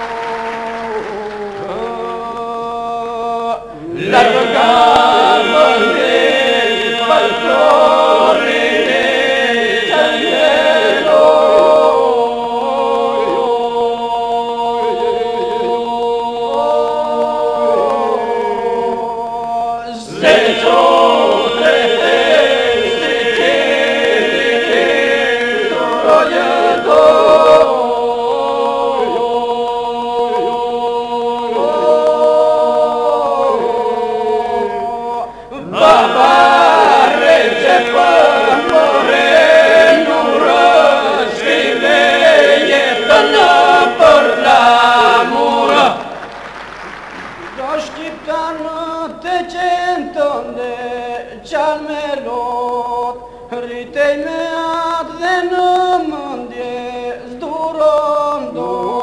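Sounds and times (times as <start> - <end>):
voices singing chant-like song: 0.0 - 59.0.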